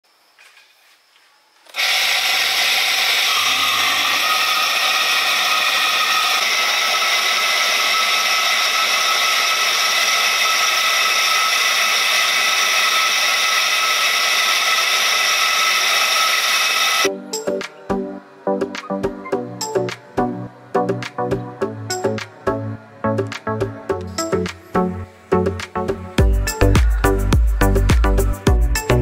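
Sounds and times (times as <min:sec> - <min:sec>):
electric motor and fan whirring: 0:00.1 - 0:17.5.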